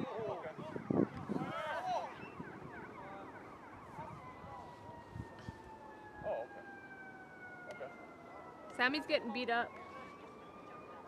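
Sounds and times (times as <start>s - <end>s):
distant siren: 0.0s - 11.0s.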